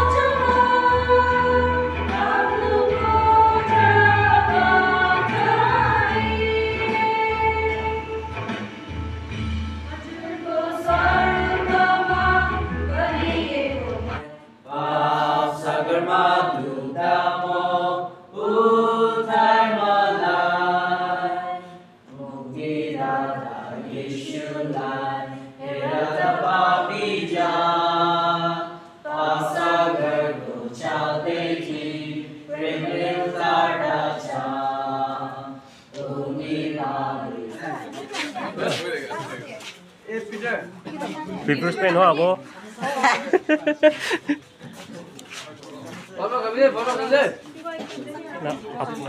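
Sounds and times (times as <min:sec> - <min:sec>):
women singing a hymn: 0:00.0 - 0:08.4, 0:09.9 - 0:39.7
low instrumental backing: 0:00.0 - 0:14.3.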